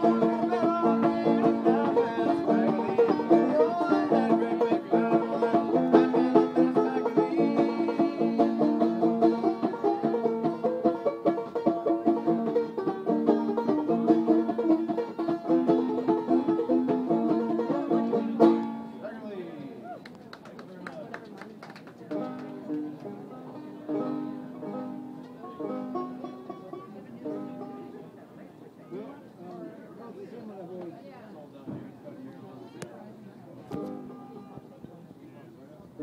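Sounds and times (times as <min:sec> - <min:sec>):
solo banjo playing: 0:00.0 - 0:19.2, 0:22.2 - 0:28.2, 0:33.7 - 0:34.6.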